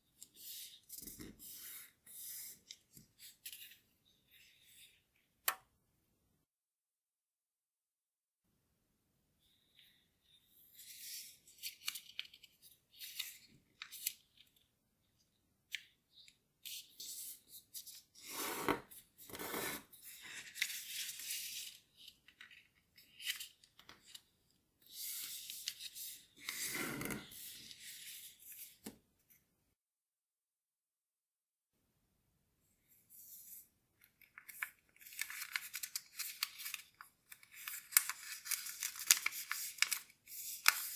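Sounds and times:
paper being folded: 10.8s - 14.7s, 19.3s - 28.9s, 34.1s - 40.9s.

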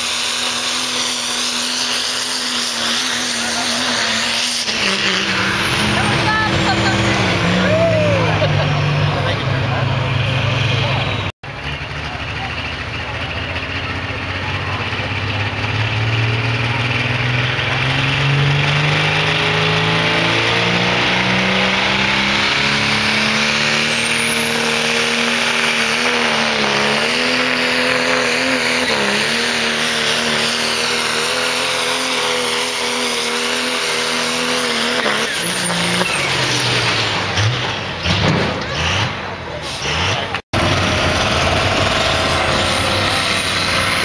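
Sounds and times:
diesel truck engine at full throttle: 0.0s - 44.0s.

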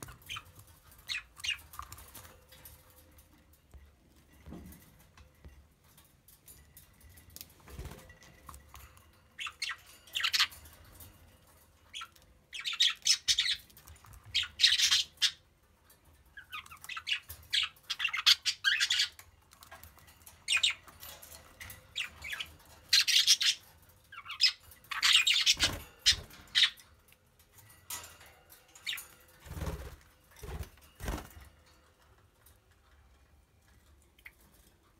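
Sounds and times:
budgerigars chirping: 9.4s - 10.5s, 11.9s - 13.6s, 14.3s - 15.4s, 16.4s - 19.2s, 21.9s - 26.8s.

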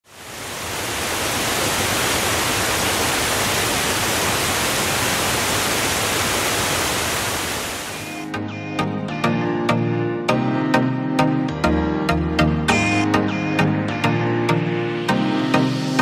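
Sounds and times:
waterfall rushing: 0.0s - 8.2s.

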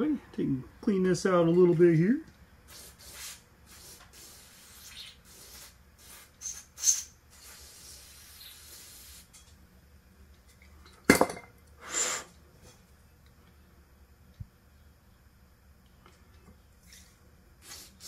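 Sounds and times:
brief hiss: 11.8s - 12.4s.

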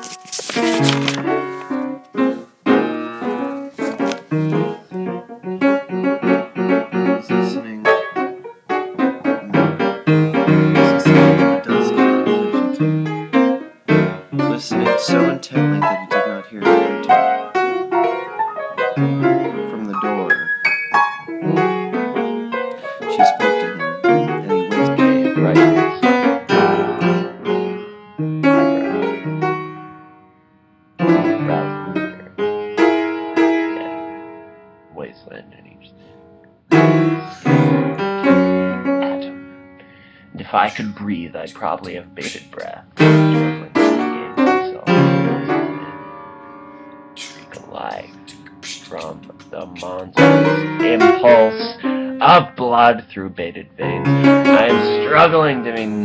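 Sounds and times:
piano music with quick notes: 0.0s - 30.2s, 31.0s - 34.9s, 36.7s - 53.1s, 53.8s - 56.0s.

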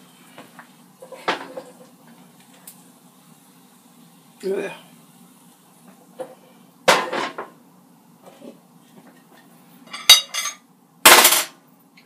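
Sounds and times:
air fryer basket clattering: 6.9s - 7.5s.

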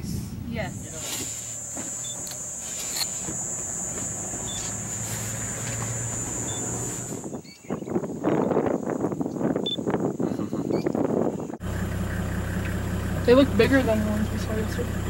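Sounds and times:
vehicle engine humming: 0.0s - 7.4s, 10.9s - 15.0s.

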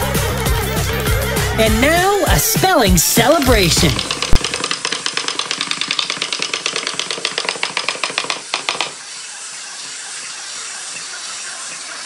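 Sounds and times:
fast rattling clicks: 3.3s - 9.0s
steady hiss: 7.1s - 12.0s.

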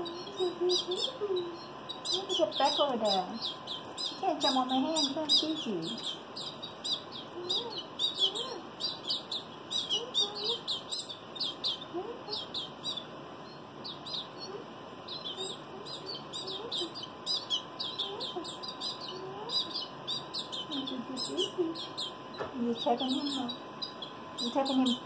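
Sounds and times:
young canaries peeping: 0.0s - 25.0s.

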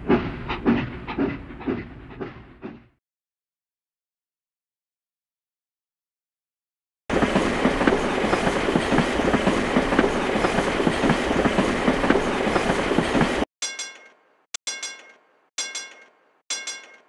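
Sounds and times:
train wheels clattering: 0.0s - 2.9s, 7.1s - 14.0s
ringing clinks: 13.6s - 17.0s.

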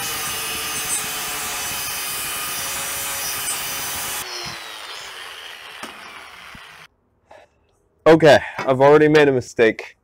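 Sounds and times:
angle grinder cutting steel: 0.0s - 6.9s.

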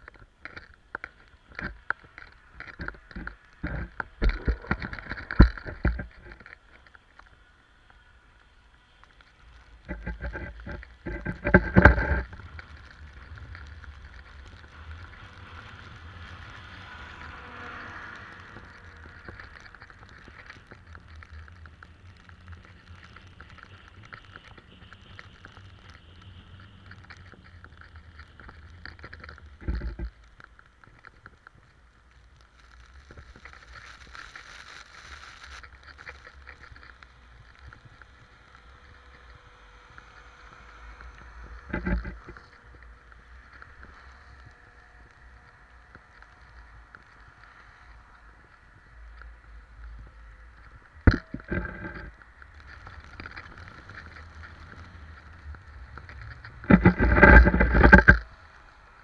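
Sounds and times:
wind rumbling on microphone: 0.0s - 59.0s
ski edges scraping packed snow: 32.0s - 39.9s.

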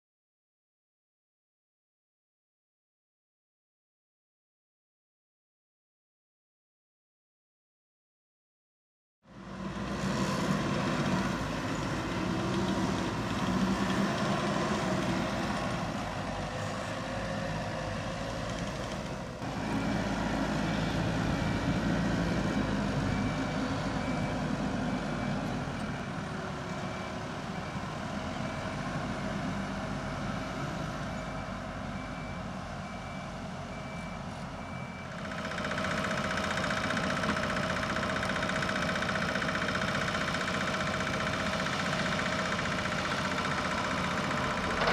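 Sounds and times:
diesel engine running: 9.3s - 44.9s
reversing alarm beeping: 21.3s - 29.4s, 30.0s - 44.8s.

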